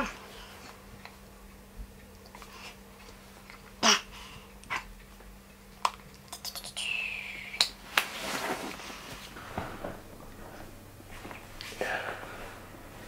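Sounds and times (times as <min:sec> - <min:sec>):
soft rustling: 0:07.8 - 0:13.0.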